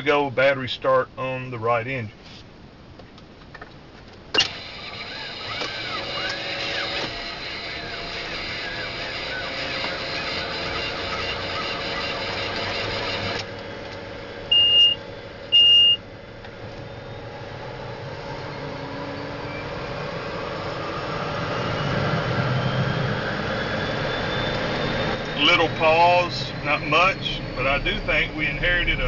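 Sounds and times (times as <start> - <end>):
turboprop turbine whine: 4.2 - 29.0
short high beeps: 14.5 - 16.0.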